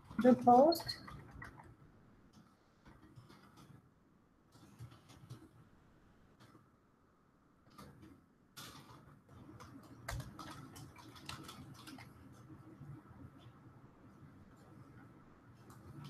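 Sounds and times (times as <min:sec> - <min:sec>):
keyboard typing: 0:00.0 - 0:03.8, 0:04.5 - 0:05.6, 0:07.7 - 0:13.6.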